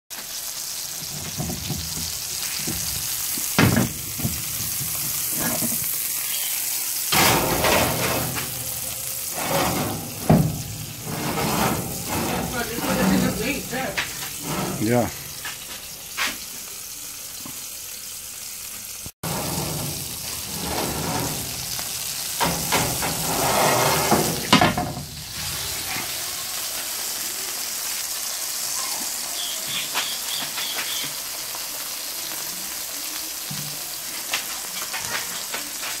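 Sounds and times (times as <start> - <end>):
steak sizzling in a skillet: 0.1 - 36.0
knocks and clatters: 1.1 - 5.9, 7.1 - 15.8, 19.2 - 25.1.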